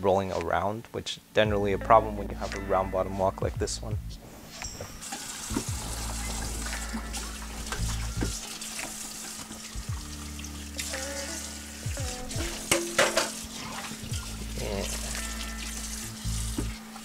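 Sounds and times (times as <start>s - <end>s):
lofi background music: 0.0s - 17.0s
water rushing: 4.3s - 17.0s.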